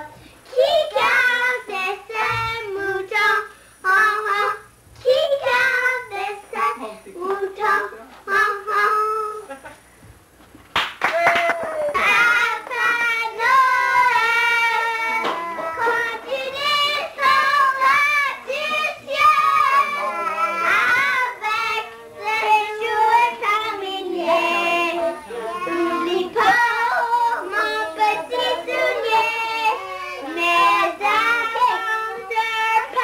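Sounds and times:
children singing: 12.0 - 33.0.

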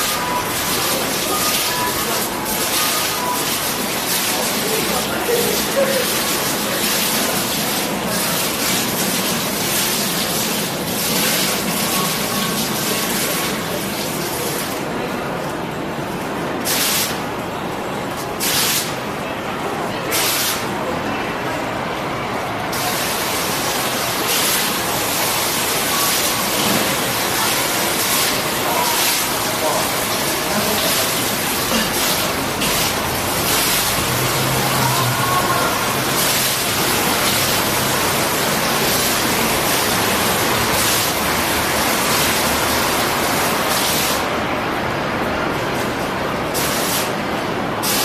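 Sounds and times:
water falling into trough: 0.0 - 14.9, 22.7 - 44.3.

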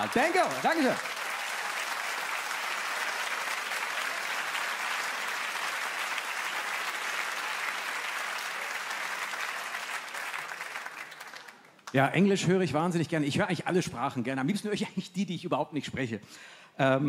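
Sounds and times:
studio audience applauding: 0.0 - 12.0.

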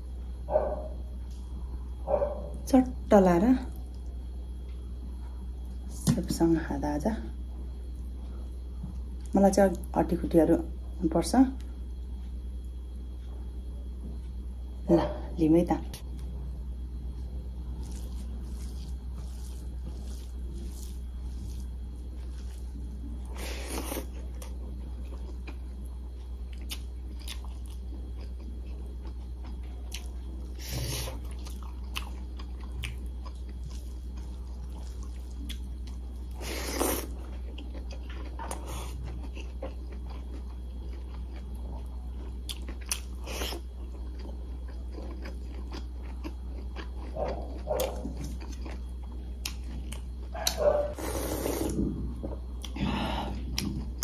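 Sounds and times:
person chewing and biting: 17.5 - 51.8.

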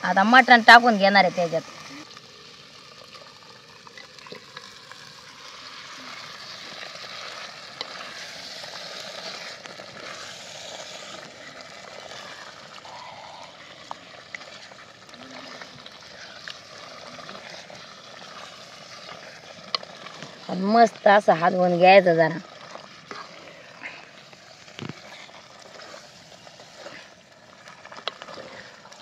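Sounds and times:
meat sizzling in hot oil: 0.0 - 29.0
wooden spoon stirring: 5.6 - 12.8, 15.8 - 29.0.

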